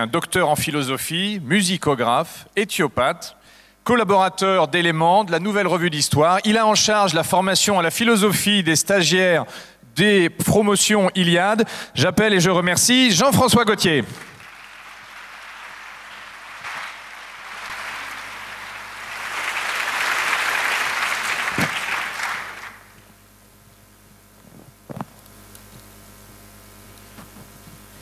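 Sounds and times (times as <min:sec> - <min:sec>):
audience applause: 0:14.0 - 0:23.0.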